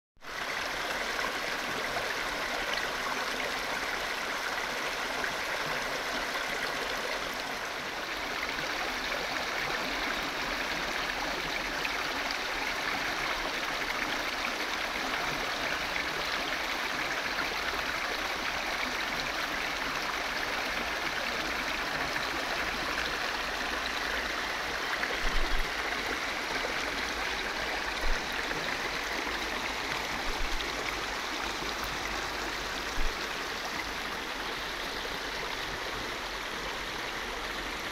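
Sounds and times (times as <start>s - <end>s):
river water rushing over rocks: 15.8s - 37.9s.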